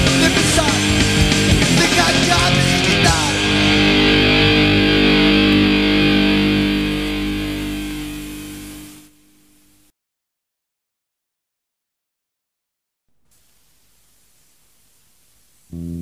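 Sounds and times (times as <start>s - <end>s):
fast drums: 0.0s - 4.0s
distorted guitar chord ringing: 0.0s - 9.9s, 15.7s - 16.0s.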